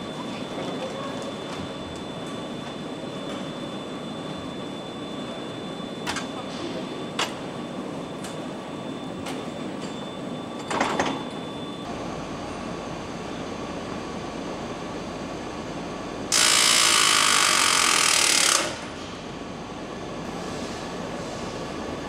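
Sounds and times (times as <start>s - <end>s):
assembly-line machinery running: 16.3s - 19.0s.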